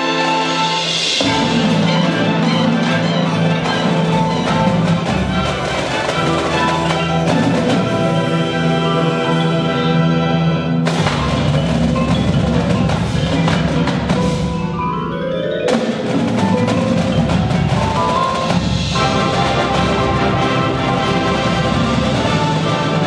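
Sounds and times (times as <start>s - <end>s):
marching band playing: 0.0s - 23.0s.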